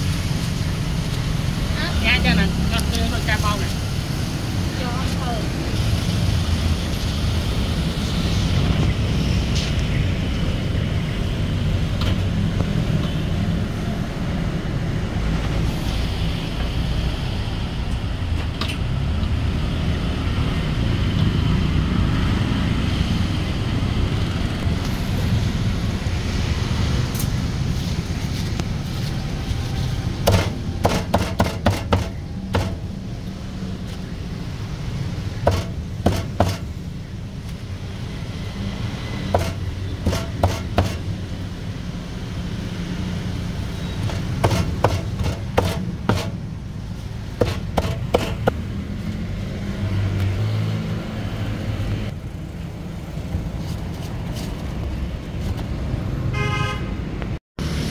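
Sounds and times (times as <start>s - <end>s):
street traffic rumble: 0.0s - 57.9s
cleaver chopping on cutting board: 30.3s - 32.8s, 35.5s - 36.6s, 39.4s - 41.0s, 44.4s - 46.3s, 47.4s - 48.5s.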